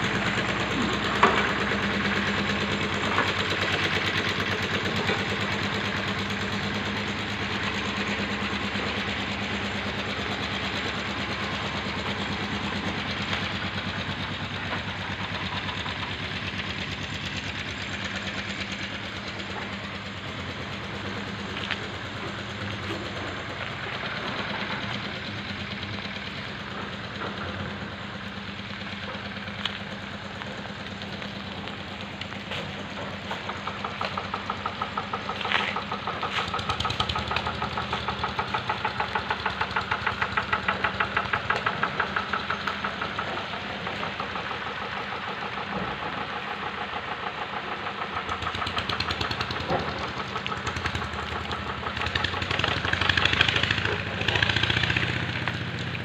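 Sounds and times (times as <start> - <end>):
engine idling with low hum: 0.0 - 56.0.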